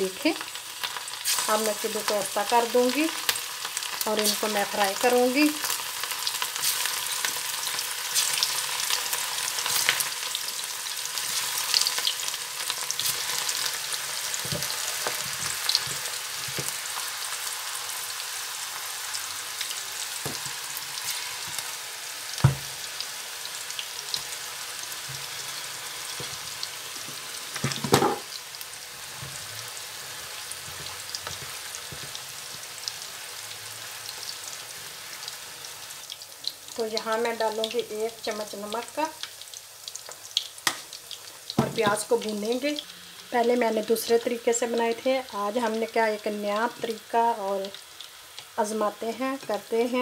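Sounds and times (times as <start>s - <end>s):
meatballs sizzling in hot oil: 0.0s - 50.0s.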